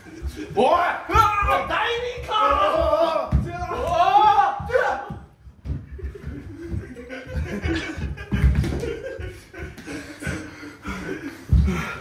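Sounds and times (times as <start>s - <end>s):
men chuckling: 5.8s - 12.0s.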